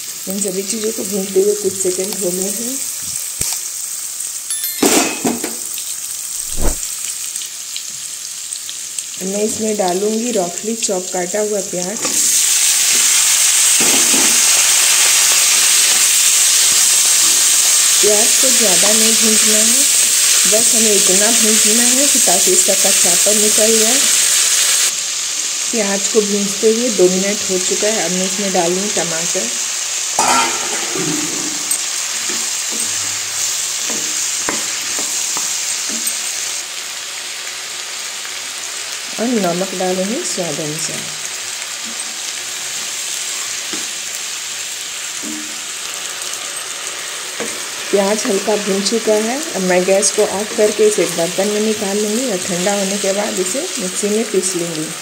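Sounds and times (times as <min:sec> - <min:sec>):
onions sizzling in hot fat: 0:00.0 - 0:55.0
wooden spatula knocking pan: 0:33.8 - 0:36.0.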